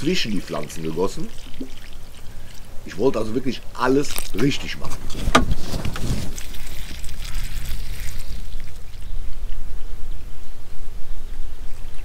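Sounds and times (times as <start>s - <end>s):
water pouring onto soil: 0.0s - 9.5s.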